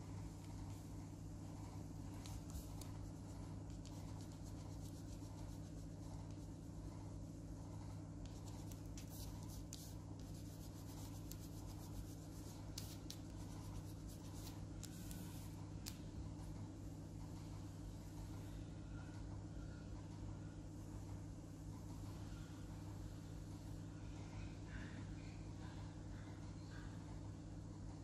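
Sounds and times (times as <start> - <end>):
steady low hum: 0.0 - 28.0
crayon scribbling on paper: 1.6 - 6.5, 8.2 - 15.6.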